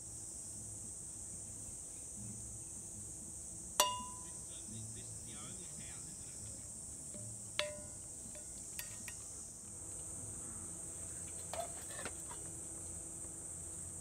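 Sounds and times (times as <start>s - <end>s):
insect chorus: 0.0s - 14.0s
metal pot lid clinks: 3.8s - 4.3s, 7.6s - 9.2s.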